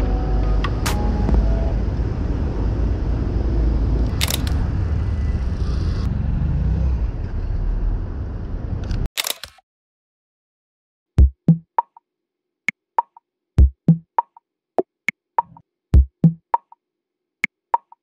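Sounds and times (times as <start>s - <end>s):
traffic rumble: 0.0s - 9.1s
camera shutter clicks: 4.2s - 4.6s, 9.2s - 9.6s.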